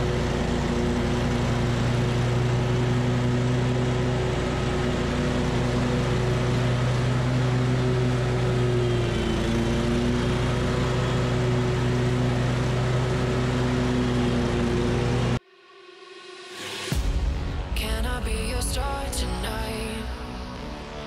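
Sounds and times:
mower engine running: 0.0 - 15.4.

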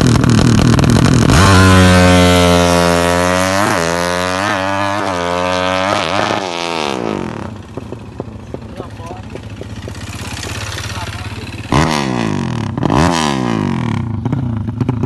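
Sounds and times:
motorbike engine revving: 0.0 - 15.0.

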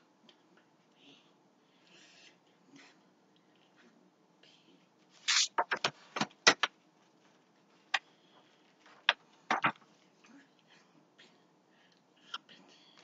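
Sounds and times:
hands tapping and knocking: 9.0 - 9.8.

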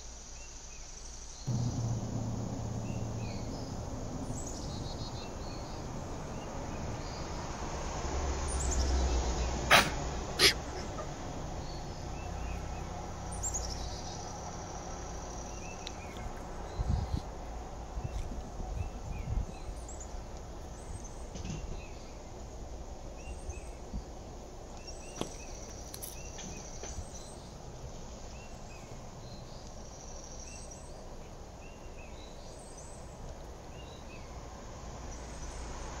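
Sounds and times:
high insect trill: 0.0 - 15.8
low rumble: 1.5 - 7.6.

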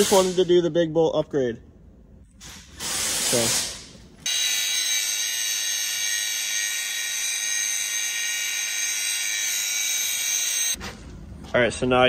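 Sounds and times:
angle grinder whining: 4.3 - 10.8.

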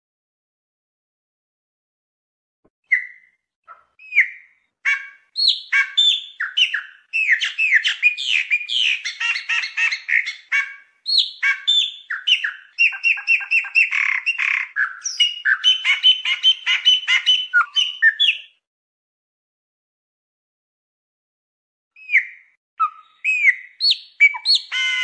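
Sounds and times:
blackbird singing: 2.9 - 18.6, 22.0 - 25.0.

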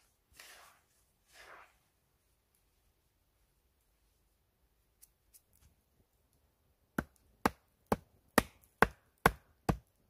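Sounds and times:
hatchet chopping wood: 6.9 - 10.0.

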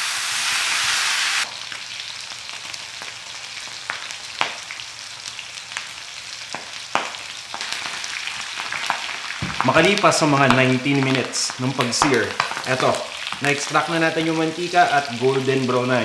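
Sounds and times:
pork sizzling in a wok: 0.0 - 16.0.

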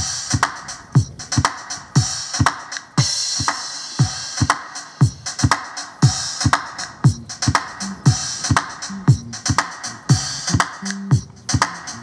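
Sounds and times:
hi-hat and snare strokes: 0.0 - 12.0
deep kick drum: 4.0 - 11.4.

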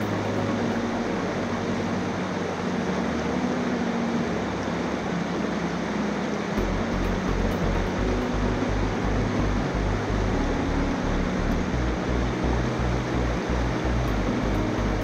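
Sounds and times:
pulsing low rumble: 6.6 - 15.0.

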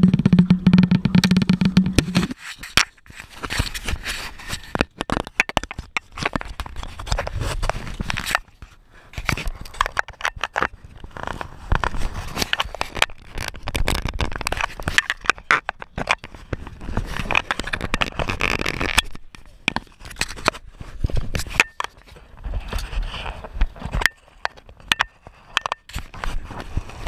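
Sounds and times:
scrapes rustles and clicks in metal boat: 2.1 - 27.0.

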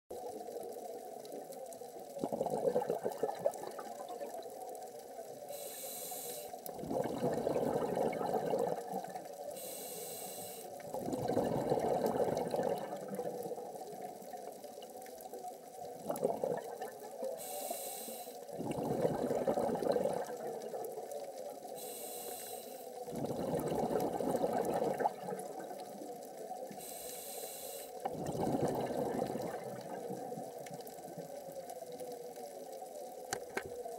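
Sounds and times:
gurgling exhaled bubbles: 1.9 - 4.7, 6.7 - 9.4, 10.8 - 14.6, 15.8 - 17.3, 18.5 - 21.7, 23.0 - 26.8, 28.0 - 32.3
regulator inhale hiss: 5.4 - 6.7, 9.4 - 10.8, 17.3 - 18.5, 21.7 - 23.0, 26.7 - 28.0.

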